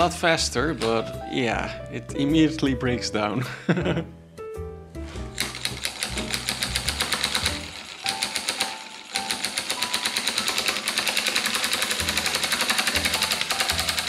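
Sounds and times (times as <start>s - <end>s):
solenoid engine clattering: 5.3s - 14.0s.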